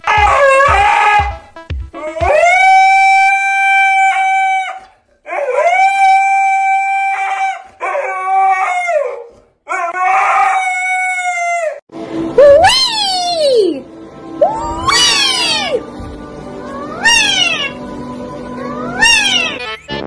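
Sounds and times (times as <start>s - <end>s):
dog howling: 0.0s - 11.8s, 14.4s - 15.8s, 16.6s - 17.8s, 18.6s - 19.6s.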